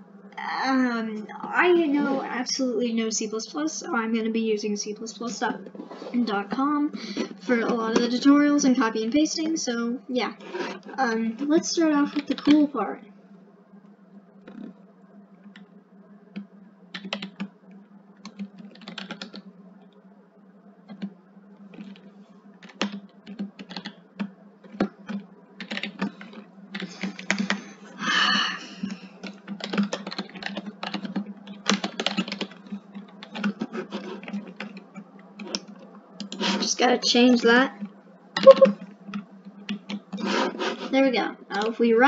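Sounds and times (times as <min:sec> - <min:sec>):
steady low hum: 0:00.0 - 0:42.0
keyboard typing clicks: 0:14.4 - 0:14.8, 0:16.3 - 0:17.5, 0:18.2 - 0:19.4, 0:20.9 - 0:21.1, 0:22.6 - 0:27.6, 0:28.9 - 0:36.4.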